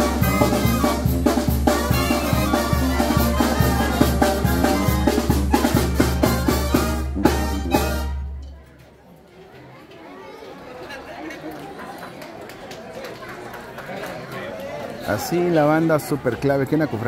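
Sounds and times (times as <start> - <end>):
brass band playing: 0.0 - 8.6.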